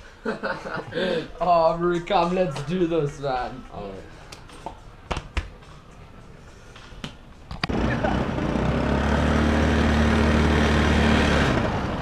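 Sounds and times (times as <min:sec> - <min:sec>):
motor scooter engine running: 0:07.6 - 0:12.0.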